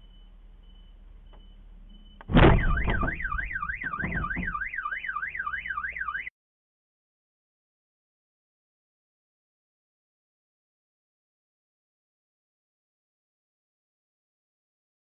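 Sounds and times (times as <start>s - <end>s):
car alarm wailing: 0.0s - 6.3s
knocks: 2.2s - 4.7s
car crashing into truck: 2.3s - 4.7s.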